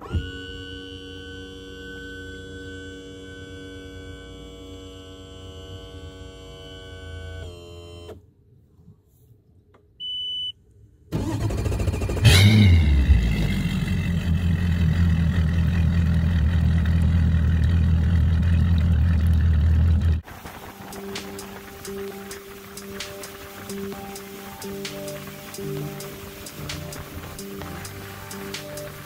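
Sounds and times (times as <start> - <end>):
outboard motor running: 11.5 - 29.0
wind and spray rushing: 20.2 - 29.0.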